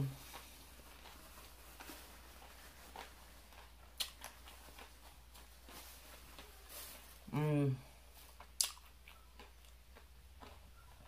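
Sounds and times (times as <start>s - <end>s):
closed-mouth chewing: 0.0s - 6.6s, 8.1s - 11.0s
wet mouth clicks: 8.5s - 9.8s.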